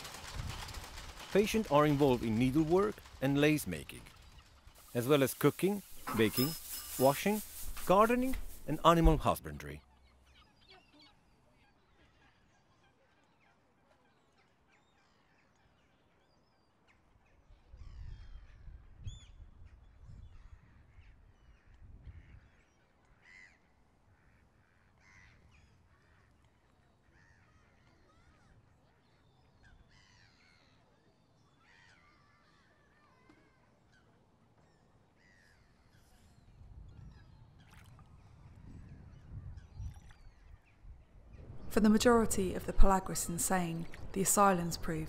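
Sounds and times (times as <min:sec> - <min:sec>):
bird chirps and caws: 0:09.8 - 0:19.4.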